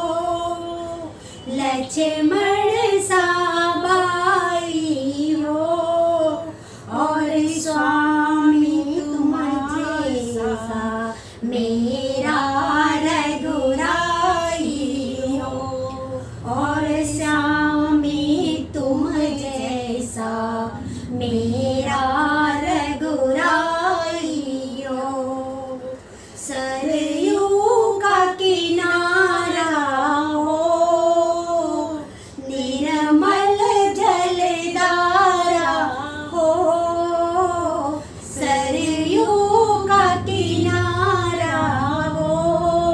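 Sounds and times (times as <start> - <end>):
women singing unaccompanied: 0.0 - 42.9
singers breathing: 6.5 - 6.9, 11.1 - 11.5, 20.7 - 21.2, 26.0 - 26.5, 32.0 - 32.4, 38.0 - 38.3.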